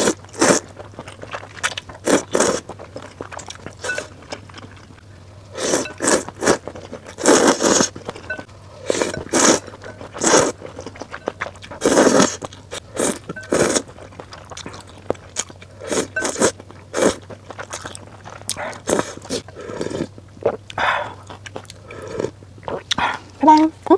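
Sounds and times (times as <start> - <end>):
slurping noodles: 0.0 - 0.7, 5.6 - 8.0, 8.8 - 10.6, 11.7 - 13.9
chewing and wet mouth sounds: 0.0 - 23.9.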